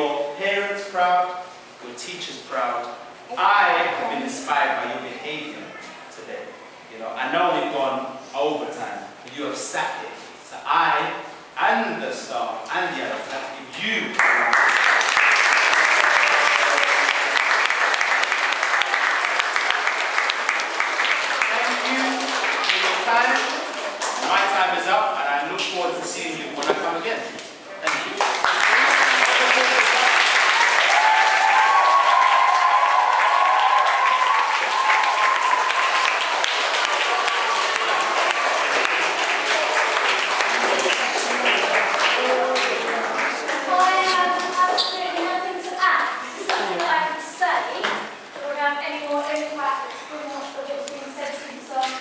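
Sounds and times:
children applauding: 14.2 - 24.6, 27.8 - 44.8.

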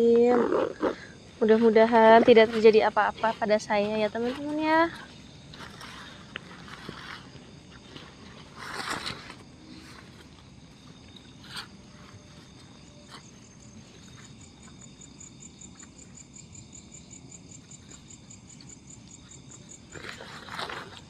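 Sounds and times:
camping gear rustling: 0.0 - 15.0, 19.2 - 21.0
insects trilling: 0.0 - 21.0
pulsing insect chirp: 0.0 - 21.0.

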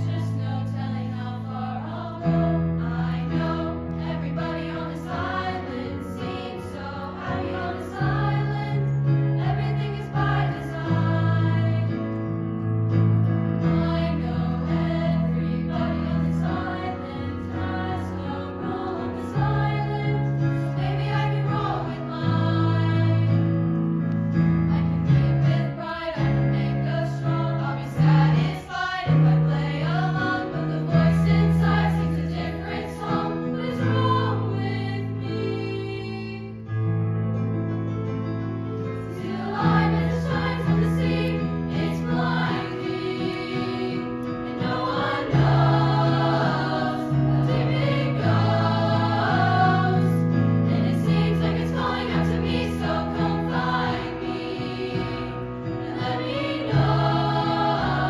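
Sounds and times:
women's choir singing: 0.0 - 12.4, 13.5 - 23.8, 24.7 - 36.7, 39.0 - 58.0.

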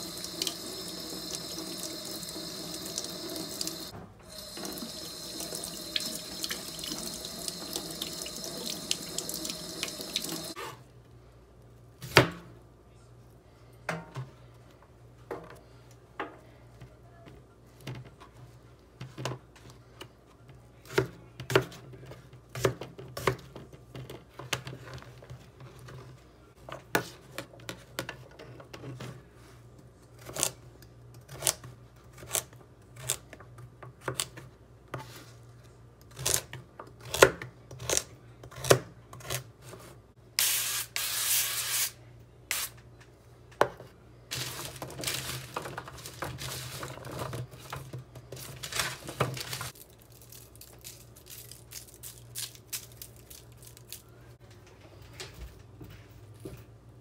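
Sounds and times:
rustling and scraping: 43.8 - 49.9.

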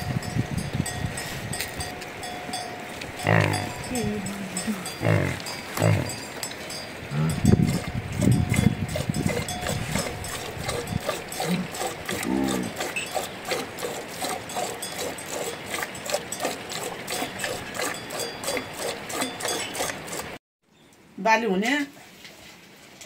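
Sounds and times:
yaks grunting: 3.2 - 6.3, 7.1 - 8.3, 9.3 - 20.2.

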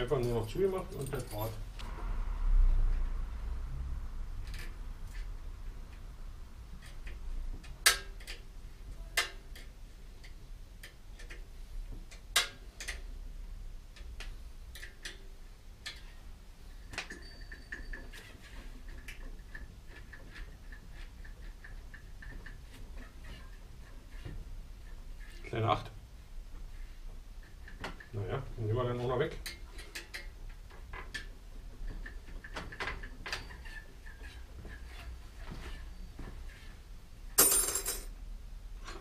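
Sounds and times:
clicks and light metallic knocks: 6.8 - 13.1, 13.9 - 16.2, 26.6 - 36.4
faint high ringing: 17.1 - 18.1.

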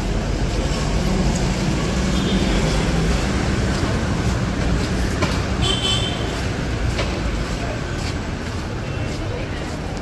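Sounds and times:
city street traffic: 0.0 - 10.0.

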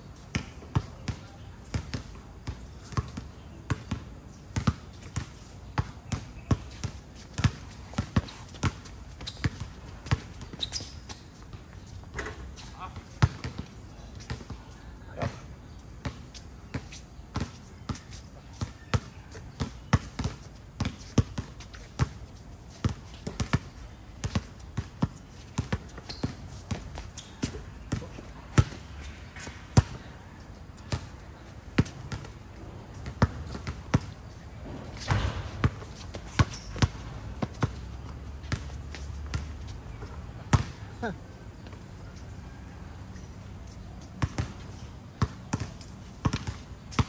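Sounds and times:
basketball bouncing on court: 0.3 - 4.0, 4.6 - 11.5, 12.1 - 14.5, 24.2 - 30.0, 31.8 - 32.3, 33.0 - 41.1, 44.2 - 44.6, 45.2 - 47.0.

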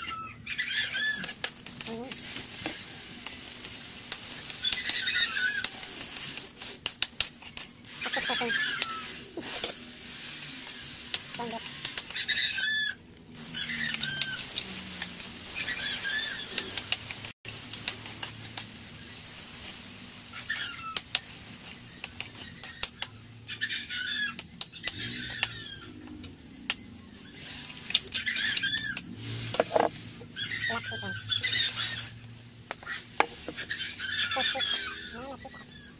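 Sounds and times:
food sizzling in hot oil: 0.0 - 35.9
metal ladle scraping wok: 13.4 - 18.4, 27.3 - 35.6.

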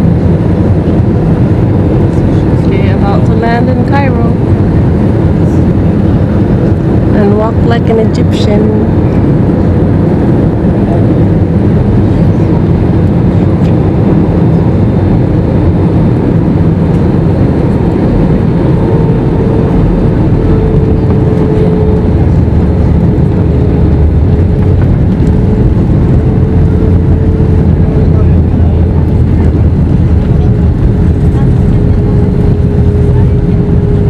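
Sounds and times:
jet engines rumbling in cabin: 0.0 - 34.0
rushing air: 8.7 - 34.0.

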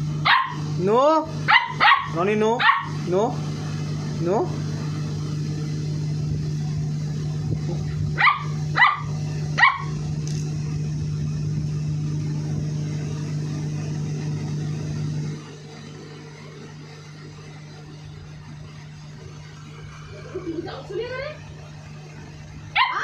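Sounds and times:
steady low hum: 0.0 - 23.0
puppy barking high-pitched: 0.2 - 0.7, 1.4 - 3.0, 8.2 - 10.0, 22.7 - 23.0.

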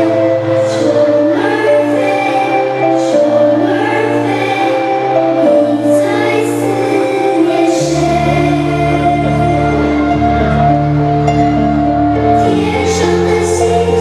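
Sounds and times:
choir singing held chords: 0.0 - 14.0
deep bass notes: 7.6 - 14.0.

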